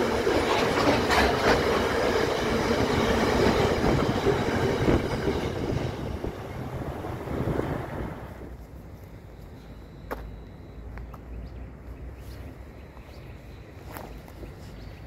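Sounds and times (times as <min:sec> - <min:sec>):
train wagons rolling on rails: 0:00.0 - 0:08.6.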